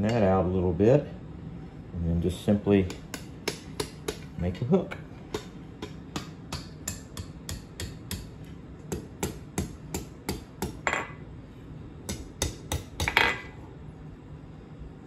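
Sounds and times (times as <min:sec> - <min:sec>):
hammer striking steel on anvil: 0:02.9 - 0:04.4, 0:05.3 - 0:11.2, 0:12.1 - 0:13.5.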